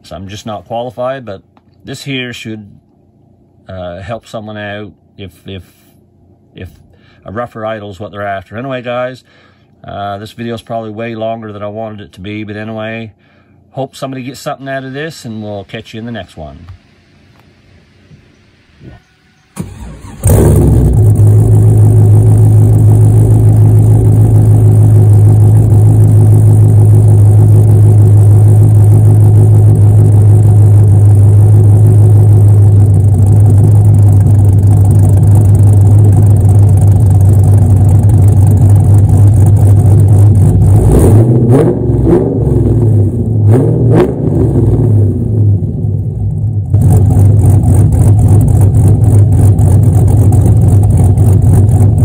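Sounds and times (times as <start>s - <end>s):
car engine idling loudly: 19.6s - 41.1s, 44.4s - 52.0s.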